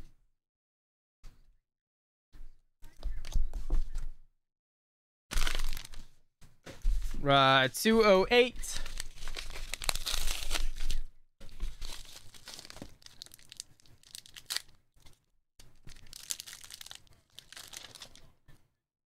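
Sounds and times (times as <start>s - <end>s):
bubble mailer tearing: 5.3s - 6.1s, 8.8s - 18.3s.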